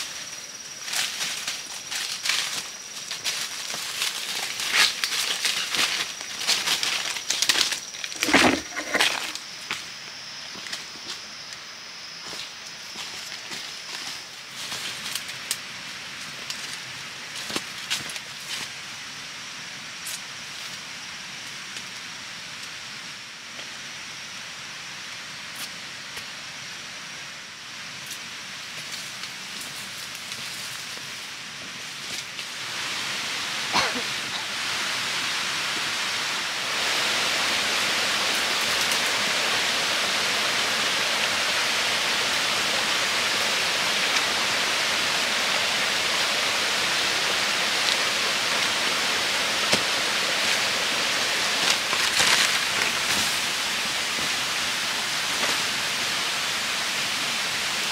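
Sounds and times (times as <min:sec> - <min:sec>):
stream water flowing: 0:32.6 - 0:57.9
twigs snapping underfoot: 0:51.6 - 0:53.4.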